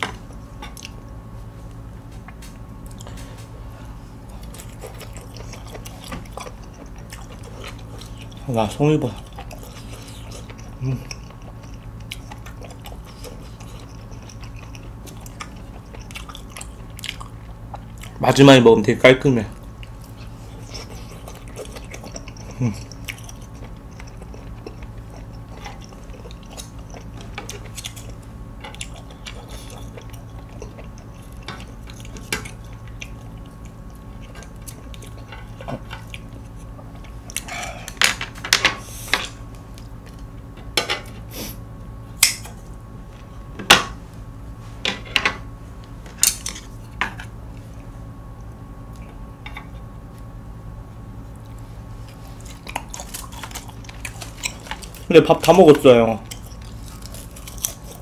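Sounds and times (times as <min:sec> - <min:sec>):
steady low hum: 0:00.0 - 0:58.0
chewing: 0:04.2 - 0:18.2, 0:19.5 - 0:38.0, 0:51.3 - 0:58.0.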